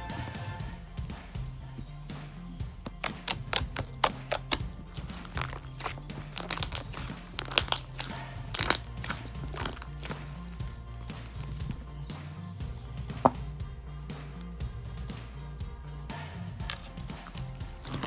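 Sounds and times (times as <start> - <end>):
background music: 0.0 - 18.0
slime clicking and popping: 2.9 - 10.7.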